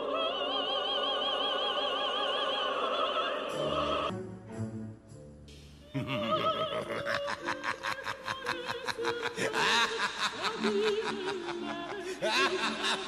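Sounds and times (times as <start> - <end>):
background music: 0.0 - 13.0
woman laughing heartily: 5.9 - 13.0.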